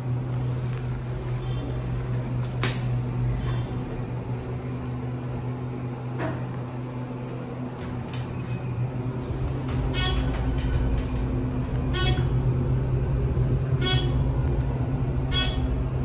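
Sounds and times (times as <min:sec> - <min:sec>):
elevator low hum: 0:00.0 - 0:16.0
sharp elevator clicks: 0:09.6 - 0:12.3.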